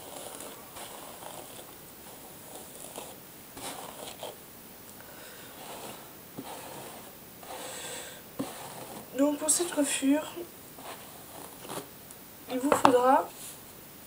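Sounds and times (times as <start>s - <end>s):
hairbrush swishing through hair: 0.0s - 4.4s, 5.5s - 7.8s, 8.4s - 9.8s.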